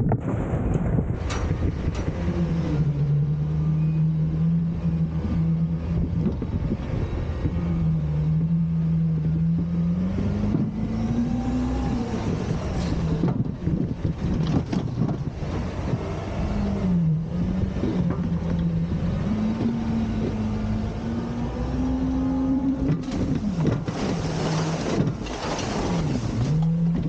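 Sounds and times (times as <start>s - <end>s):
garbage truck engine running: 0.0s - 27.0s.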